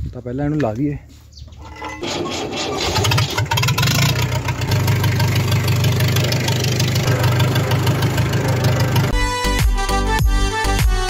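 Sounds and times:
tractor diesel engine starting: 1.6 - 9.2.

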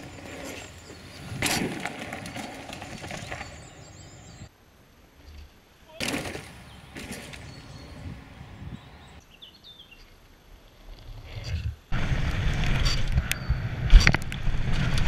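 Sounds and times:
mountain bike riding on dirt trail: 0.0 - 4.5, 6.0 - 8.3, 12.0 - 15.0
bird chirps: 3.1 - 4.5, 6.6 - 10.2
wind buffeting microphone: 7.4 - 9.2.

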